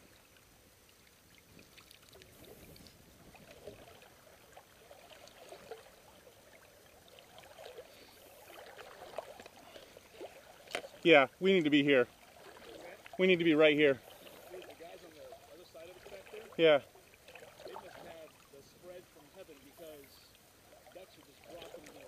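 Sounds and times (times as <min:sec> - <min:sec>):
small splashes: 0:00.0 - 0:22.0
water lapping against boat hull: 0:00.0 - 0:22.0.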